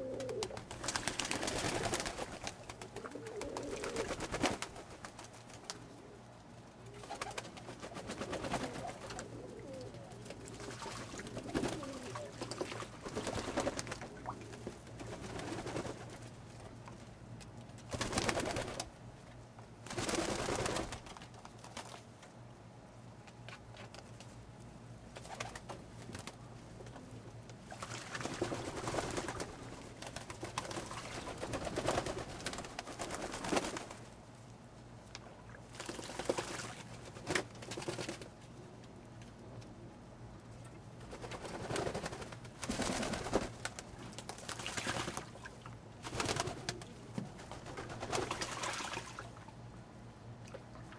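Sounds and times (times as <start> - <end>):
pigeons cooing: 0.0 - 0.7, 2.8 - 4.3, 6.9 - 12.6
wings flapping: 0.0 - 5.8, 6.9 - 16.3, 17.9 - 19.0, 19.9 - 22.0, 25.2 - 27.0, 27.7 - 34.1, 35.7 - 38.3, 41.0 - 45.4, 46.0 - 49.2
splashing in water: 10.6 - 11.4, 44.4 - 45.6, 48.3 - 49.4.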